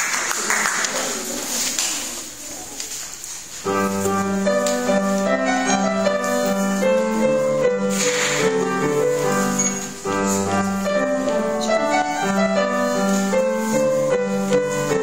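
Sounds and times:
upright piano melody: 3.6s - 15.0s.

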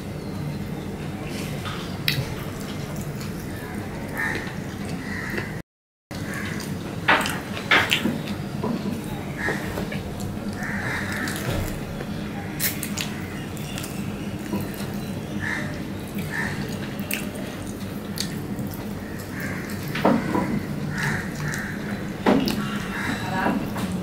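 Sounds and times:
steady low hum: 0.0s - 24.0s
wet chewing and smacking: 9.9s - 15.2s, 16.1s - 22.8s.

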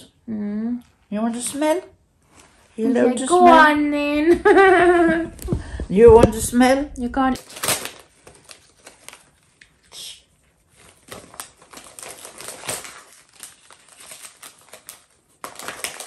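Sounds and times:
wrapping paper crinkling: 7.4s - 9.8s, 10.5s - 16.0s.

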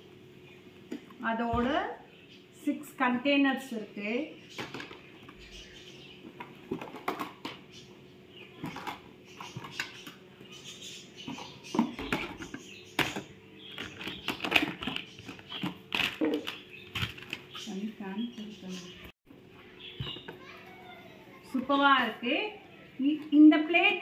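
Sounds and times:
plastic containers clattering: 4.6s - 5.4s, 6.2s - 7.7s, 8.6s - 10.2s, 11.2s - 17.7s.

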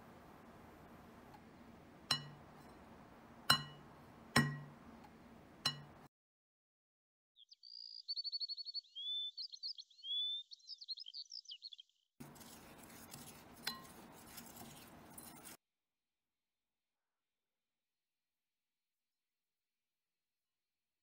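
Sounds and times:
spoon clinking against glass: 2.1s - 2.4s
spoon stirring in glass bowl: 2.1s - 2.9s, 12.2s - 15.6s
bird singing: 7.4s - 12.1s.

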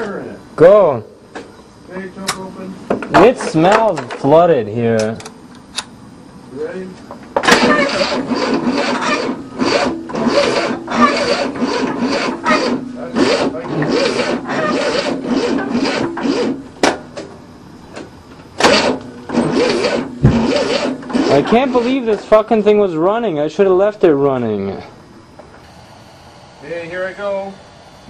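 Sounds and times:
car engine cranking: 7.4s - 22.6s.

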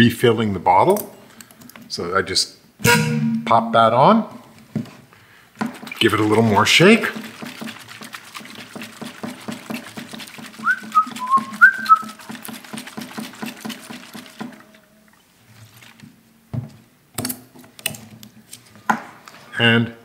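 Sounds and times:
whistled notes: 2.8s - 3.5s, 10.6s - 12.2s
water sloshing in plastic bottle: 5.6s - 16.2s.

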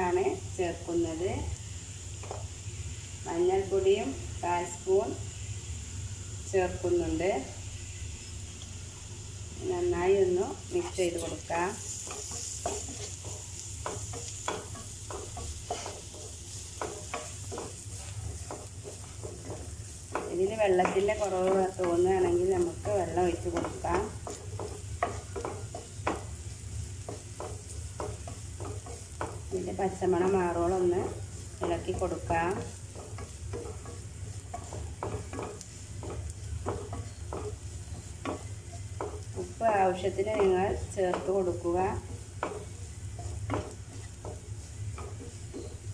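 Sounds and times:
vegetables sizzling in oil: 0.0s - 45.9s
wooden spatula scraping pan: 10.3s - 45.9s.

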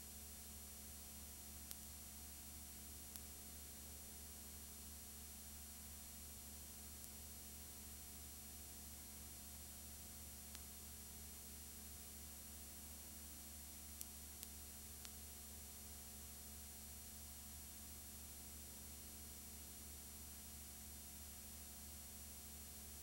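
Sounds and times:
low electrical hum and hiss: 0.0s - 23.0s
faint clicks: 1.6s - 1.8s, 14.0s - 15.2s.

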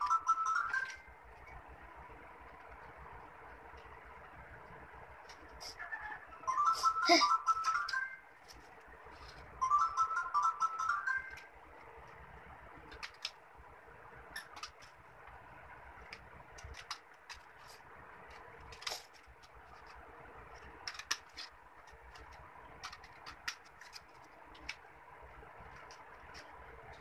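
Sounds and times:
steady background hum: 0.0s - 27.0s
scissors snipping paper: 20.6s - 24.8s.

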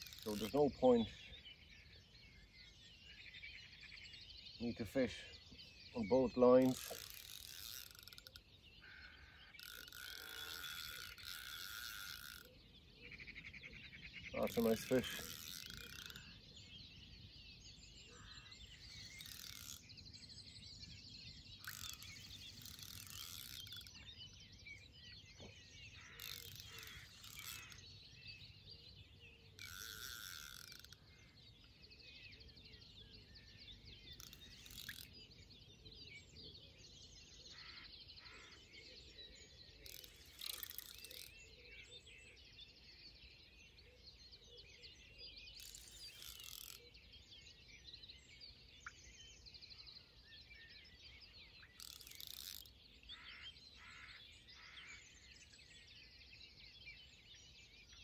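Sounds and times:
fishing reel ratcheting clicks: 0.0s - 0.6s, 6.6s - 8.4s, 9.3s - 12.5s, 14.5s - 16.3s, 19.0s - 19.9s, 21.6s - 24.0s, 26.1s - 27.8s, 29.6s - 31.0s, 34.2s - 35.1s, 39.8s - 41.3s, 45.6s - 46.8s, 51.8s - 52.7s
birds chirping: 0.0s - 58.0s.

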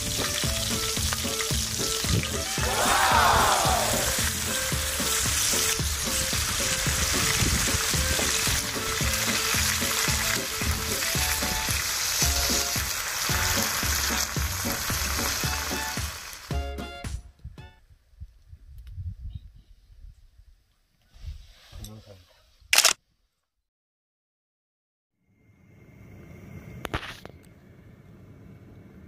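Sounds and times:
pork sizzling on griddle: 0.0s - 17.0s.

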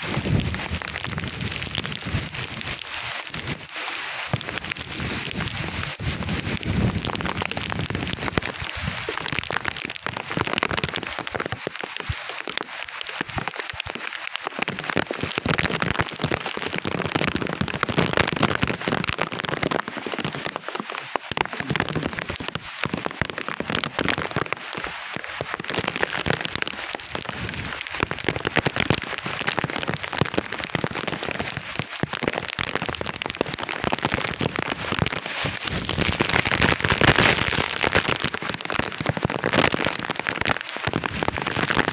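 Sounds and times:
wind buffeting microphone: 0.0s - 3.6s, 4.4s - 9.9s
heavy rain pouring: 0.0s - 41.9s.

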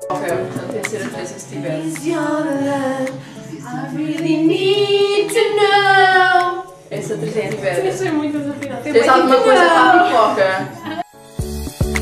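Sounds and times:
women singing: 0.0s - 11.0s.

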